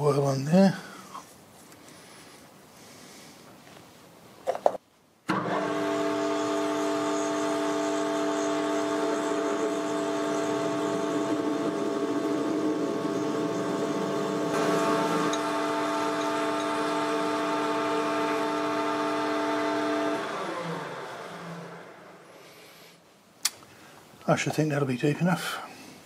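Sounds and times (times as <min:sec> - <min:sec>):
drill cutting into steel: 0:05.3 - 0:21.8
lathe gear whine: 0:05.3 - 0:22.2.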